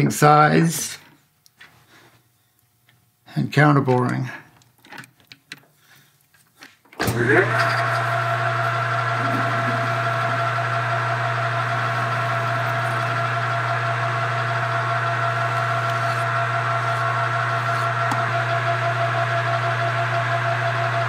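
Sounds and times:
metal lathe motor whining: 7.0 - 21.0.

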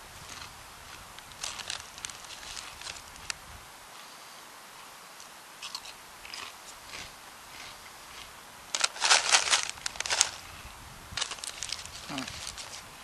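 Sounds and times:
potato chips crunching: 5.6 - 10.4, 11.2 - 12.8.

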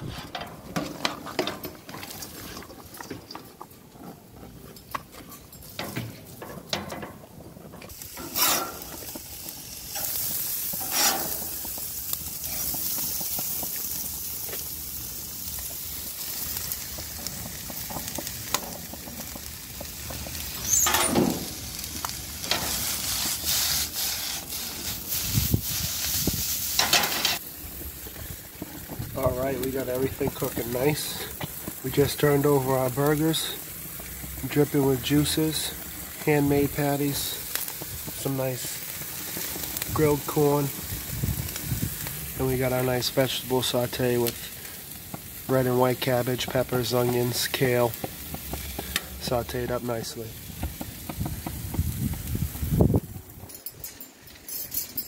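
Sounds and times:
vegetables sizzling in oil: 7.9 - 53.3
spatula scraping a pan: 8.2 - 9.0, 10.0 - 11.5.

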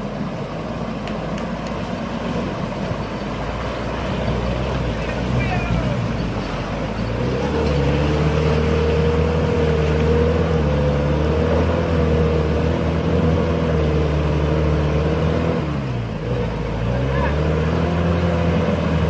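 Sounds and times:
pickup truck engine revving hard: 7.1 - 19.0.

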